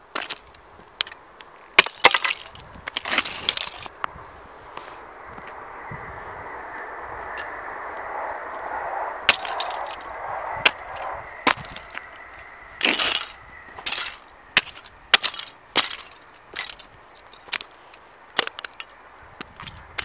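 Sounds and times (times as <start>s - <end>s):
crunching scrapes: 1.8s - 5.6s, 6.7s - 18.9s.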